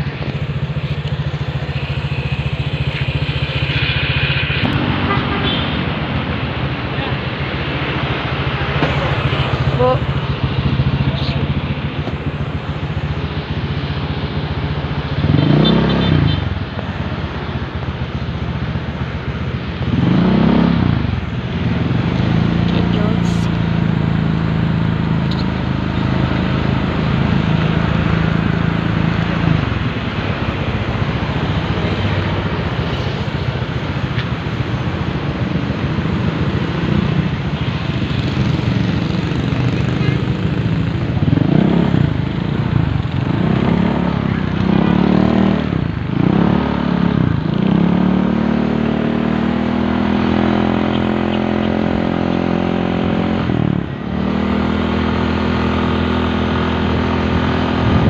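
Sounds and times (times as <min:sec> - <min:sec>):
motorcycle engine revving: 0:00.0 - 0:58.0
wind noise on microphone: 0:57.3 - 0:58.0.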